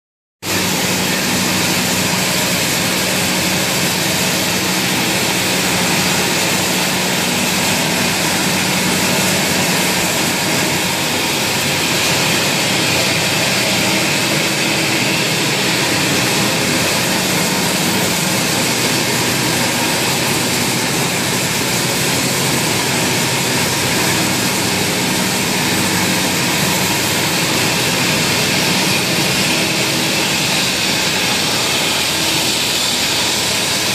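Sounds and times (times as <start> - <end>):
popcorn machine humming: 0.4 - 33.9.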